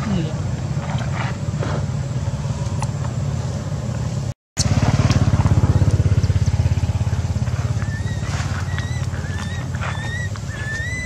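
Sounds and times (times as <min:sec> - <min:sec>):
small engine idling: 0:02.2 - 0:11.0
baby monkey crying: 0:07.8 - 0:11.0.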